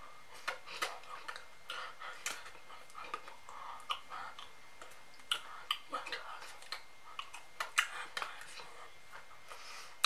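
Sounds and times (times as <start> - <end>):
person whispering: 0.4 - 4.5, 5.3 - 9.4
mouth noises: 0.4 - 9.3.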